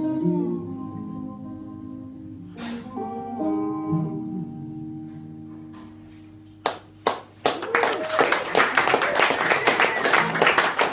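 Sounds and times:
audience applause: 7.0 - 10.9.

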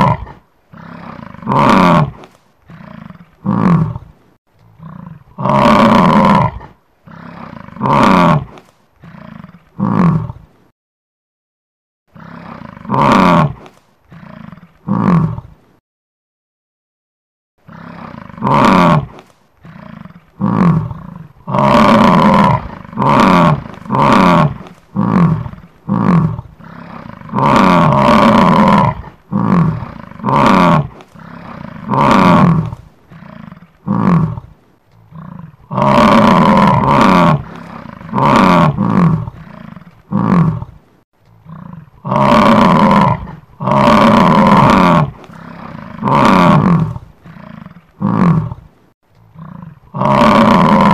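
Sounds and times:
bison bellowing: 17.7 - 34.5, 35.1 - 40.7, 41.4 - 48.7, 49.4 - 50.9.

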